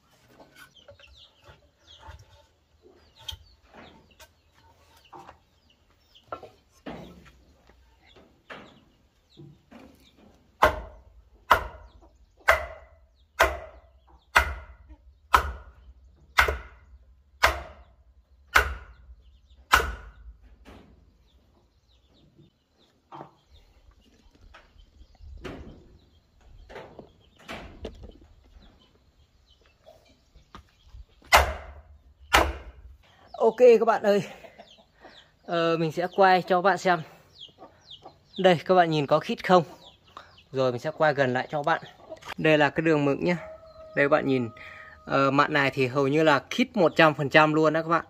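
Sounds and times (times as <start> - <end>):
wooden mallet knocking timber: 10.6 - 11.8, 12.4 - 15.8, 16.4 - 16.8, 17.4 - 17.9, 19.7 - 20.2.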